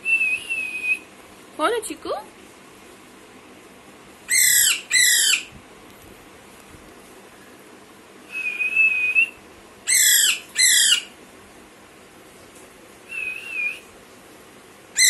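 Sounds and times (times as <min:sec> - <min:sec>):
parakeet squawking: 0:04.3 - 0:05.5, 0:09.9 - 0:11.2.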